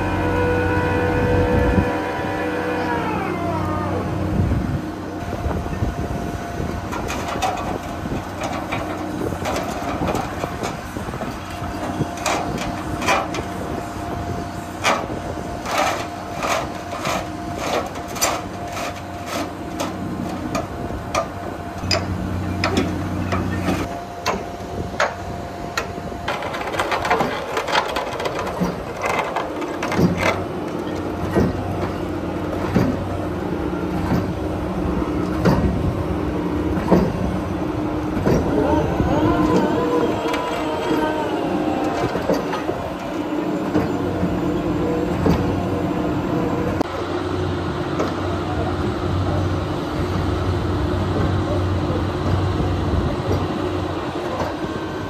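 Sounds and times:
construction machinery engine hum: 0.0s - 55.0s
metallic clanks and knocks: 25.8s - 33.1s, 35.2s - 35.9s
steady high tone: 38.5s - 46.8s.

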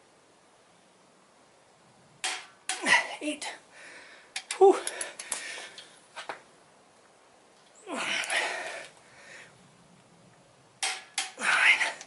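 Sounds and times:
man exhaling with effort: 7.8s - 9.5s, 11.3s - 12.0s.

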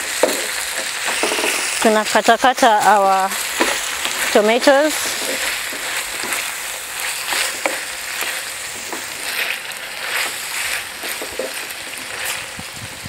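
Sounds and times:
meat sizzling in oil: 0.0s - 13.0s
metal spoon scraping pan: 3.4s - 12.5s.

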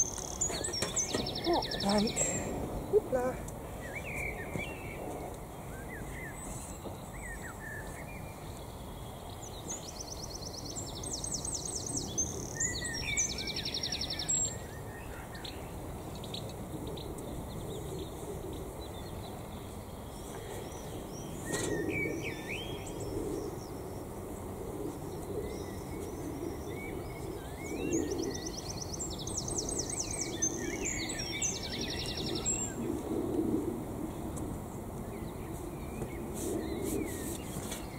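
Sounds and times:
songbird trilling song: 0.0s - 5.0s, 5.7s - 17.9s, 18.8s - 23.8s, 25.4s - 32.9s.

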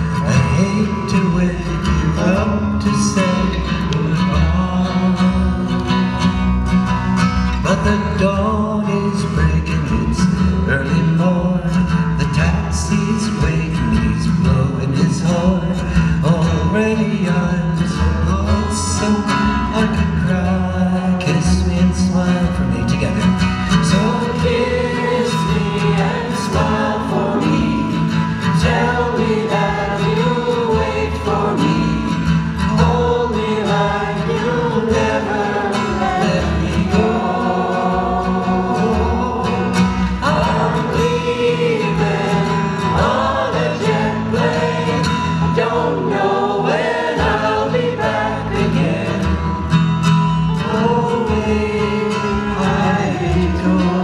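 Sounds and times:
acoustic guitar strumming: 0.0s - 54.0s
washtub bass line: 0.0s - 54.0s
voices singing: 23.6s - 54.0s.

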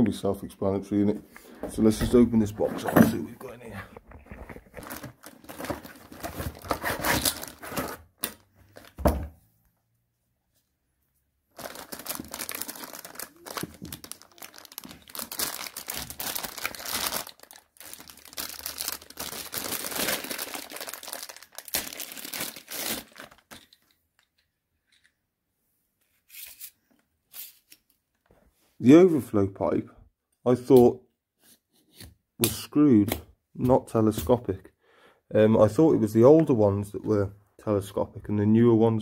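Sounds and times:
cardboard box being opened: 4.1s - 8.0s
plastic packaging crinkling: 4.1s - 9.0s, 11.5s - 24.0s.

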